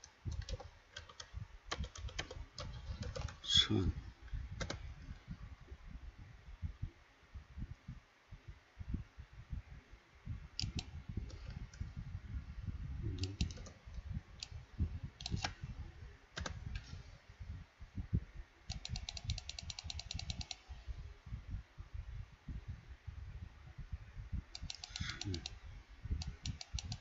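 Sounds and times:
computer keyboard clicks: 0.3s - 3.4s, 4.6s - 4.8s, 13.2s - 13.8s, 16.4s - 16.9s, 18.7s - 20.6s, 24.6s - 25.6s, 26.2s - 27.0s
dull low thumps: 1.3s - 18.8s, 20.9s - 24.6s, 25.6s - 26.6s.

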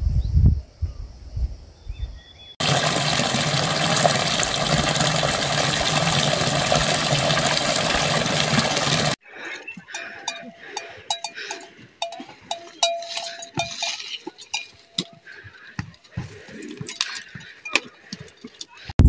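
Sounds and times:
bell clinking: 10.0s - 15.2s
animals crunching dry stalks: 12.0s - 18.9s.

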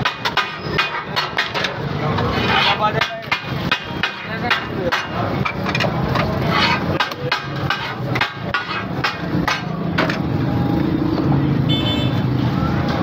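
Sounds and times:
spatulas clanging on iron griddle: 0.0s - 10.4s.

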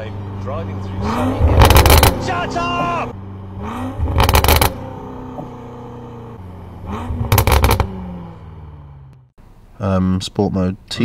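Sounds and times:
engine drone: 0.0s - 9.4s
exhaust popping and crackling: 0.4s - 8.5s.

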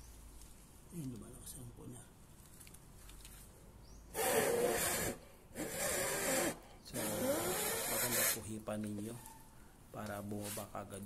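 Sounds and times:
person blowing hard into opening: 4.1s - 8.4s.

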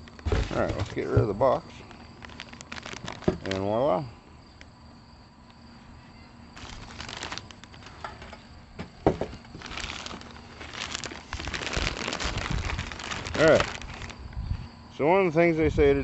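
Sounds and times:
high insect trill: 0.0s - 16.0s
plastic wrapping crinkling: 1.8s - 3.8s, 6.6s - 8.4s, 9.4s - 14.2s.

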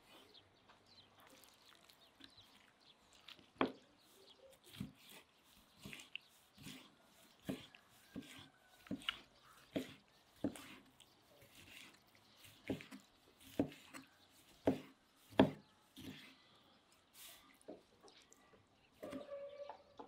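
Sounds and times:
knife chopping on wooden board: 5.8s - 16.3s.

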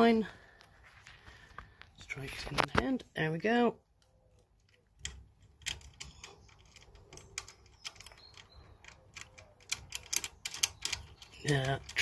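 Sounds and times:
metallic clicks and taps: 4.0s - 12.0s.

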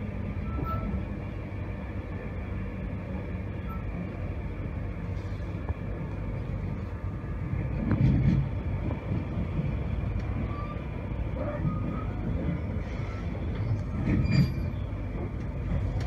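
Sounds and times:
train coach rumbling on rails: 0.0s - 16.0s.

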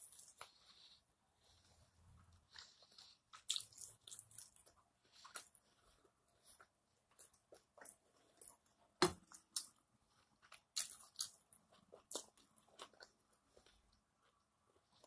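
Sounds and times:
person chewing steak: 2.4s - 8.6s, 9.3s - 14.5s.

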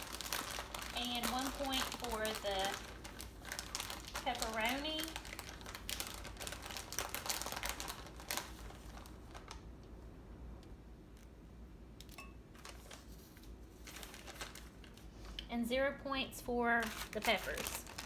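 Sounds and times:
aluminum foil crinkling: 0.0s - 9.7s, 12.1s - 15.5s, 16.7s - 18.0s.

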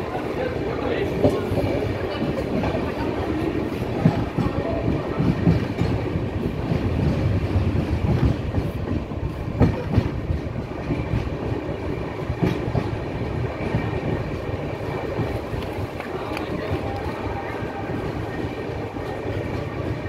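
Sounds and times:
train wheels rumbling on rail: 0.0s - 20.0s
clickety-clack over rail joints: 0.1s - 20.0s.

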